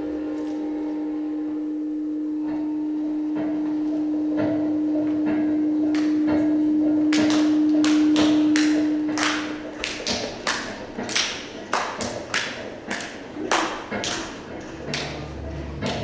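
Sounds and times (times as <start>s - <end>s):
loud droning tone: 0.0s - 11.1s, 14.4s - 16.0s.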